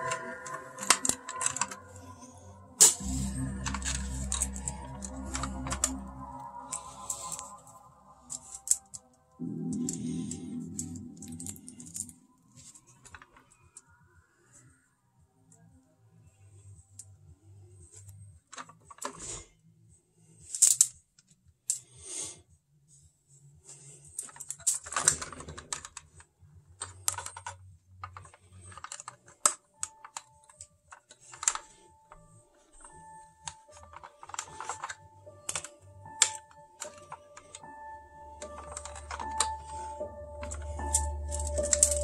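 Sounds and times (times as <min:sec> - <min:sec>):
toy truck parts clicking: 0:00.0 - 0:02.0, 0:20.5 - 0:20.9, 0:24.2 - 0:26.2, 0:26.8 - 0:31.8, 0:32.7 - 0:37.7, 0:38.4 - 0:42.0.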